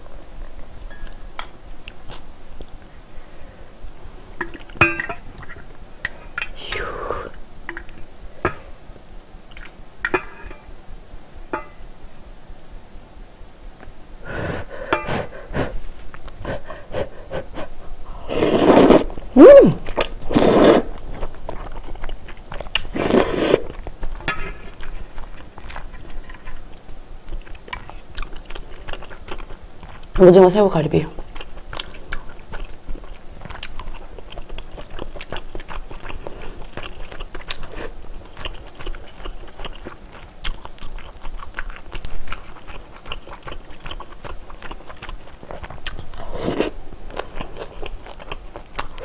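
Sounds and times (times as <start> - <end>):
slurping noodles: 18.1 - 19.2, 19.9 - 21.3, 22.8 - 23.8
chewing: 19.8 - 30.2, 31.0 - 49.0.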